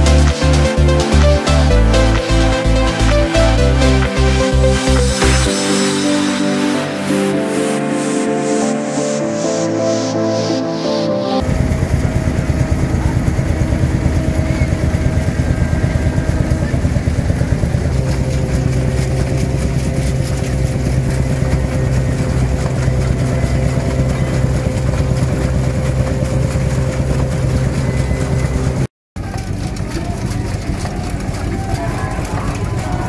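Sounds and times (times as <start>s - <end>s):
threshing machine running: 11.4s - 33.0s.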